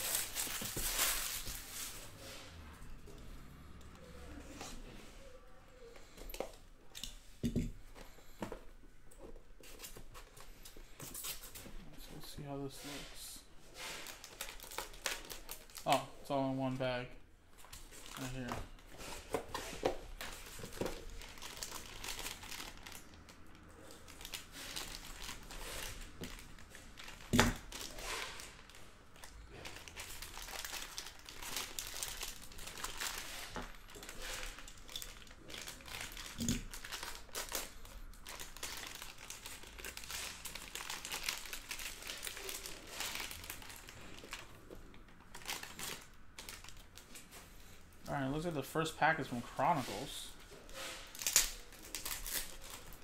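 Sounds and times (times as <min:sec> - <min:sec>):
foil wrappers crinkling: 0:00.0 - 0:02.4, 0:13.7 - 0:16.1, 0:17.6 - 0:53.0.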